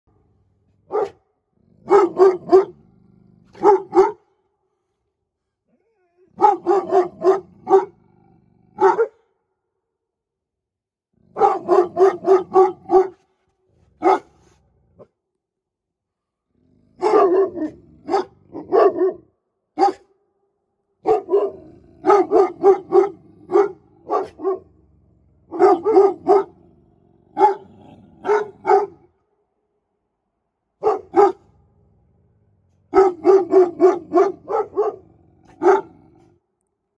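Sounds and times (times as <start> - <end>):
dog barking: 0.8 - 2.8, 3.5 - 4.4, 6.3 - 8.0, 8.7 - 9.4, 11.3 - 13.4, 14.0 - 15.1, 16.9 - 20.2, 21.0 - 24.8, 25.4 - 26.7, 27.3 - 29.2, 30.8 - 31.6, 32.8 - 36.3.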